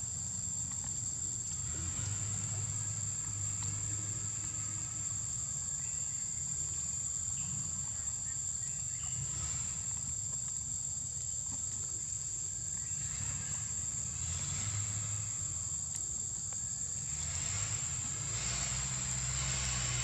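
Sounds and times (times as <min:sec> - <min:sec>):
high-pitched insect drone: 0:01.4 - 0:10.2.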